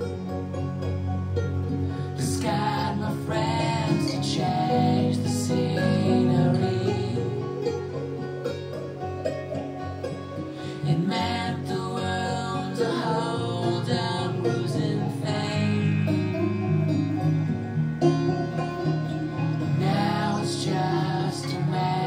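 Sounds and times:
instrumental rock music with guitars: 15.0 - 21.7.

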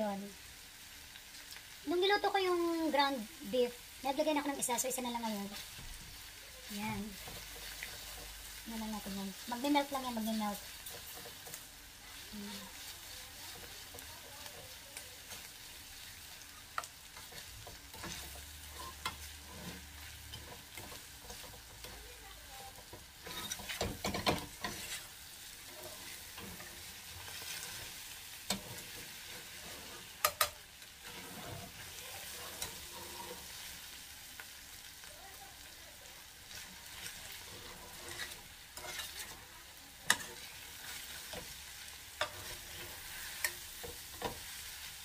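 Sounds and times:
meat sizzling in a skillet: 0.0 - 45.0
metal spatula scraping a pan: 4.5 - 33.9, 36.5 - 45.0
spatula tapping a pan: 22.7 - 25.0, 30.2 - 30.6.

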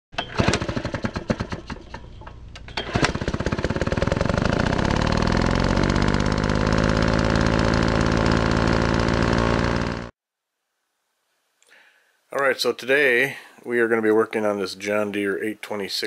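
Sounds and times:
small engine sputtering and running: 0.2 - 10.1.

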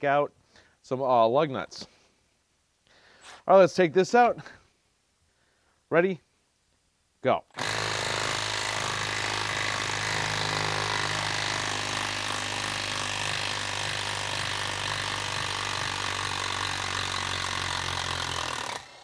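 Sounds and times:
cordless impact wrench hammering: 7.6 - 19.0.

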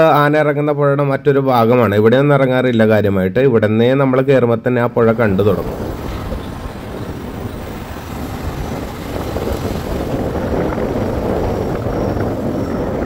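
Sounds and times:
vehicle road noise: 4.9 - 13.0
wind rushing over microphone: 4.9 - 13.0.

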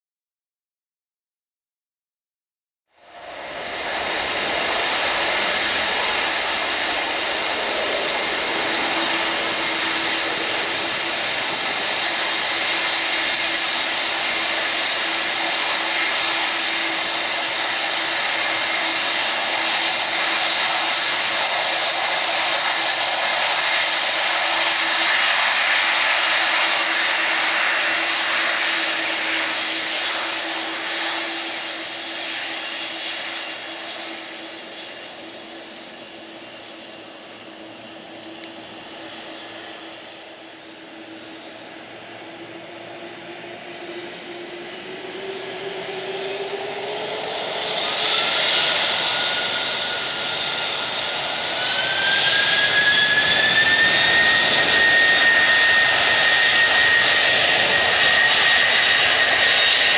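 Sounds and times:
jet engines roaring: 3.0 - 59.9.

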